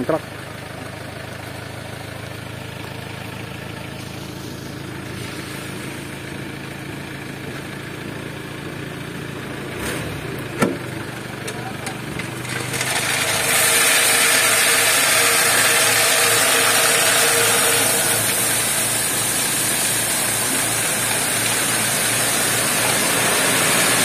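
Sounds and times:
truck engine running: 0.0 - 24.0
gravel sliding out of truck bed: 4.0 - 6.2.

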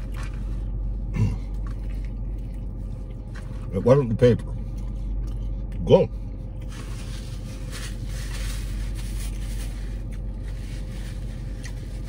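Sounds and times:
low car cabin hum: 0.0 - 12.0
paper crinkling and rustling: 6.6 - 12.0.

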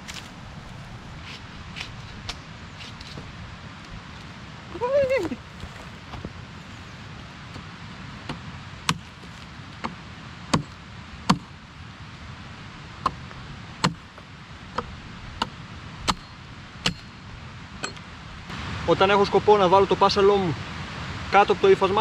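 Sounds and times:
blade chopping wooden pole: 8.3 - 11.5, 14.8 - 16.3, 16.9 - 17.1.

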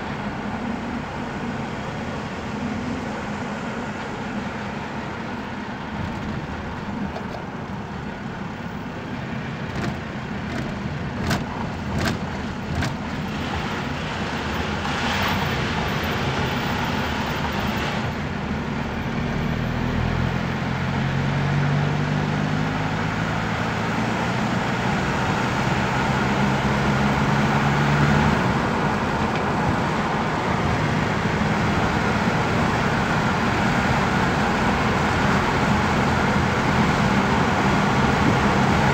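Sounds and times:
car engine and road noise: 0.0 - 38.9.

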